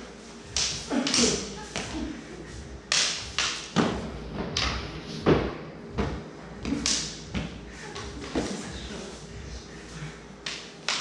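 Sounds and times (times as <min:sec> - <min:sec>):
practice swords clacking together: 0:00.5 - 0:01.9, 0:02.9 - 0:03.9, 0:06.6 - 0:07.2, 0:10.4 - 0:11.0.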